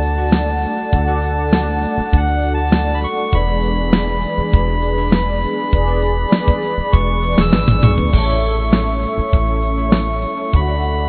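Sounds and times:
low bass: 0:00.0 - 0:11.0
sustained chords: 0:00.0 - 0:11.0
drum beat: 0:00.4 - 0:10.6.

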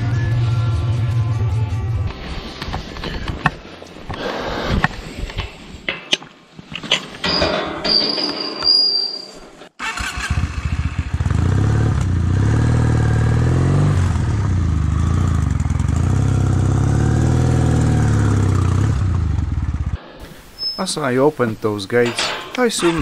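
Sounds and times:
motorcycle engine accelerating: 0:09.8 - 0:20.0.

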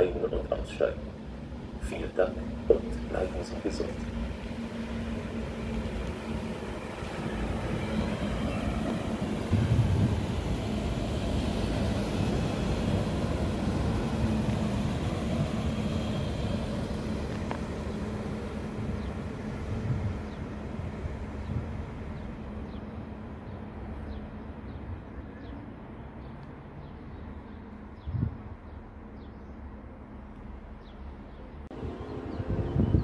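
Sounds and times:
train wheels rumbling on rails: 0:00.0 - 0:23.7
diesel engine drone: 0:00.0 - 0:24.5, 0:31.6 - 0:33.0.

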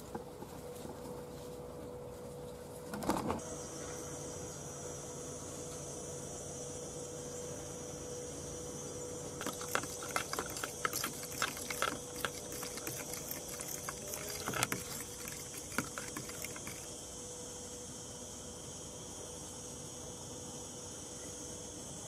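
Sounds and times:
water sloshing in a bucket: 0:09.4 - 0:16.9.

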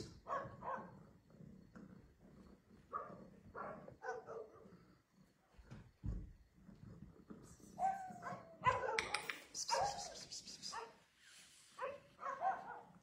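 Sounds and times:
dogs barking faintly: 0:11.7 - 0:13.0.

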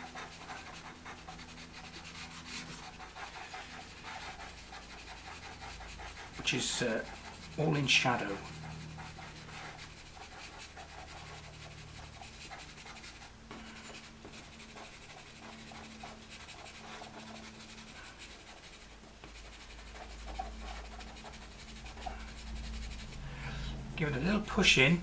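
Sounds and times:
pencil scribbling on paper: 0:00.0 - 0:23.2.

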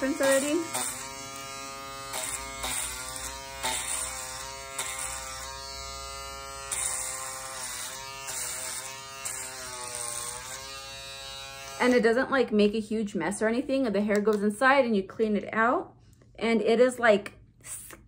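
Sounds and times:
electric shaver buzzing: 0:00.0 - 0:12.2.

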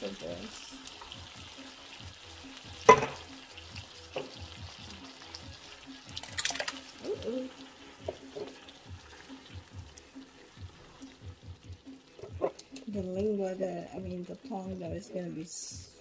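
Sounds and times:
soft background music: 0:00.0 - 0:16.0
spatula scraping metal can and pan: 0:08.1 - 0:08.7, 0:12.1 - 0:12.9.

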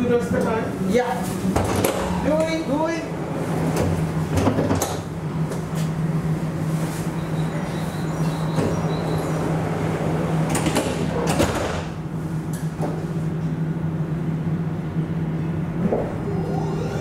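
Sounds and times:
tram electrical hum: 0:00.0 - 0:17.0
sliding door clatter: 0:08.5 - 0:12.0.

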